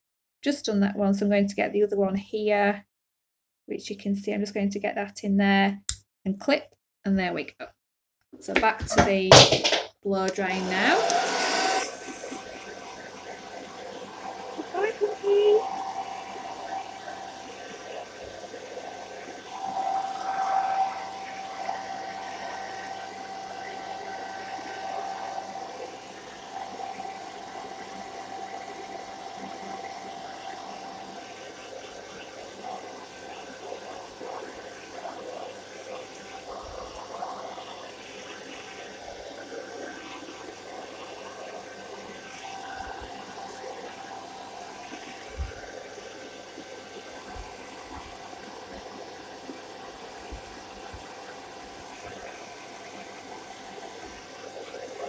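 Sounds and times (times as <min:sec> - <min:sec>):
hairdryer running: 0:10.3 - 0:31.8, 0:42.2 - 0:45.8.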